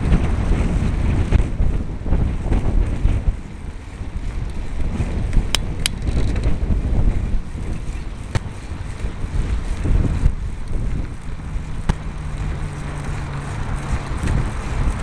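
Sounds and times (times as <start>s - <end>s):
tyres rumbling on asphalt: 0.0s - 15.0s
wind buffeting microphone: 0.0s - 15.0s
sharp clicks: 5.3s - 6.5s.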